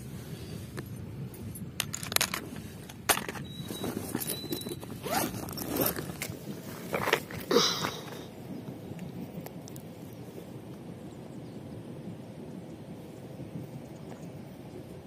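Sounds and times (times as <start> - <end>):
bag rustling: 3.2 - 8.2
backpack zipper rasping: 3.7 - 7.4.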